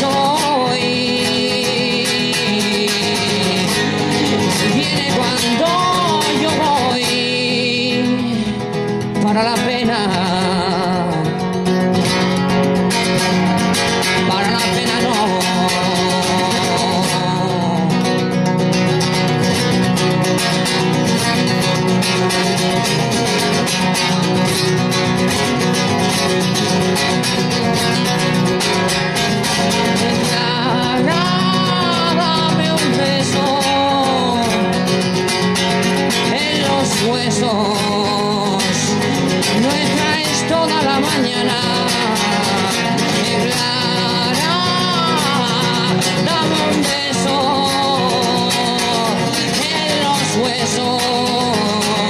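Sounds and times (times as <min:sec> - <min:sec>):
man singing: 0:00.0 - 0:19.3, 0:28.6 - 0:52.0
acoustic guitar strumming: 0:00.0 - 0:52.0.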